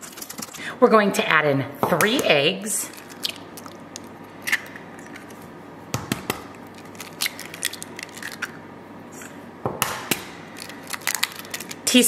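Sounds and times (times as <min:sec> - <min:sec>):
eggs cracking on metal bowl: 0:01.9 - 0:08.6, 0:09.7 - 0:11.9.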